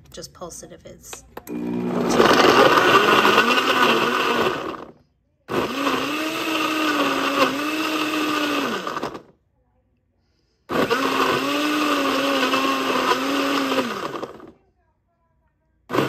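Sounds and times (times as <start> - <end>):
blender chopping fruit: 1.5 - 4.9, 5.5 - 9.3, 10.7 - 14.6.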